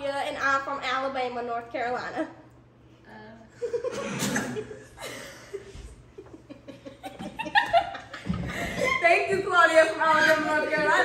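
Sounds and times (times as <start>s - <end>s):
girls laughing and giggling: 3.5s - 11.0s.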